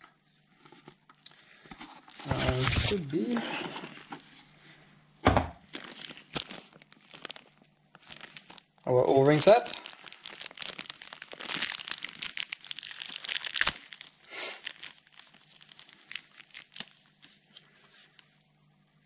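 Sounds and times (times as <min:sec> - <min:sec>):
plastic bag crinkling: 0:05.7 - 0:18.2.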